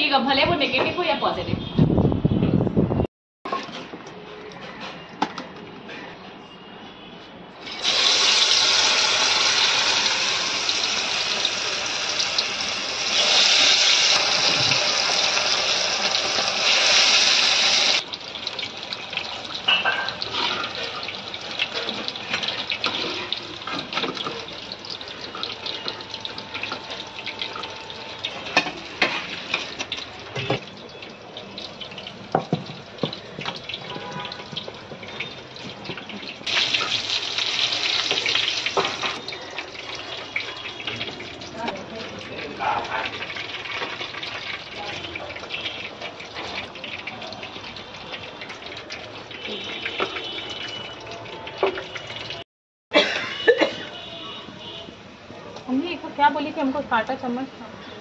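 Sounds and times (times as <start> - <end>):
food sizzling in hot oil: 7.6 - 52.4.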